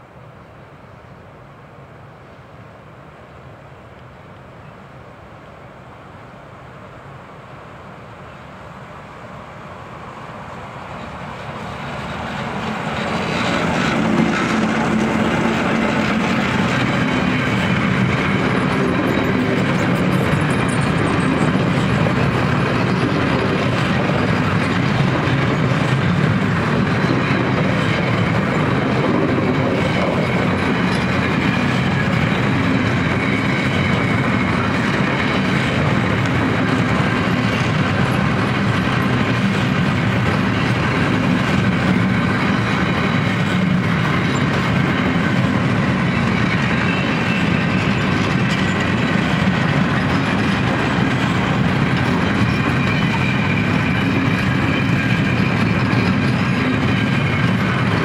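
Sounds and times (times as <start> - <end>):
train wheels rumbling on rails: 8.2 - 58.0.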